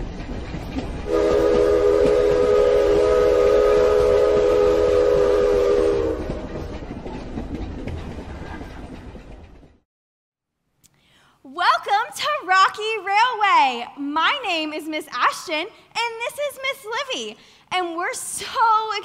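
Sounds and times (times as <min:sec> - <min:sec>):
low rumble of moving train: 0:00.0 - 0:09.8
train whistle chord: 0:01.1 - 0:06.7.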